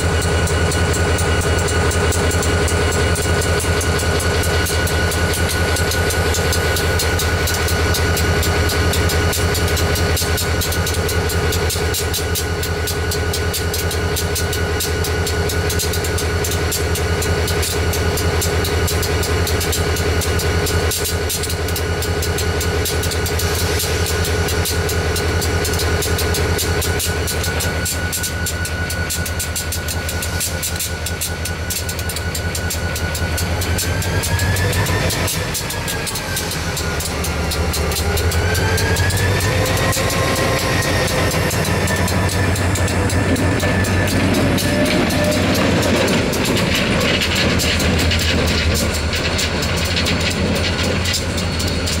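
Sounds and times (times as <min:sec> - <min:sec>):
diesel locomotive idling: 0:00.0 - 0:52.0
high whine: 0:22.7 - 0:52.0.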